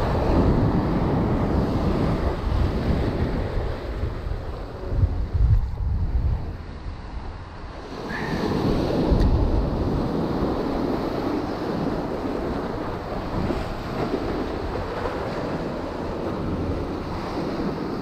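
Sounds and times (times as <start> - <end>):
wind rumbling on microphone: 0.0 - 18.0
surf breaking over rocks: 7.8 - 18.0.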